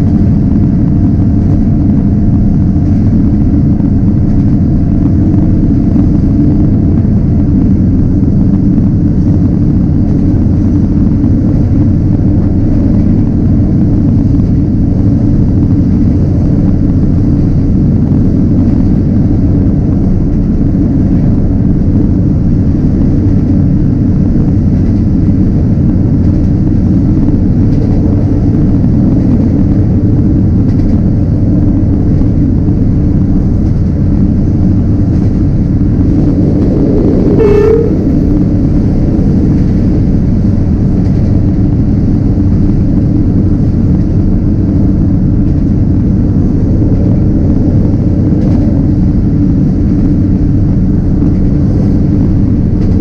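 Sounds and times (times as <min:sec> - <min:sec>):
train wheels rumbling on rails: 0:00.0 - 0:53.0
wind: 0:00.0 - 0:53.0
train horn blast: 0:36.5 - 0:38.4.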